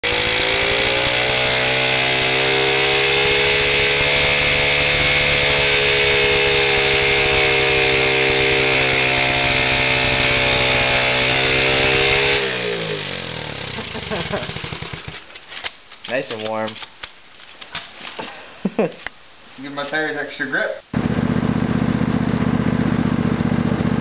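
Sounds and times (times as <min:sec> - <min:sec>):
motorcycle engine revving: 0:00.0 - 0:15.2, 0:20.9 - 0:24.0.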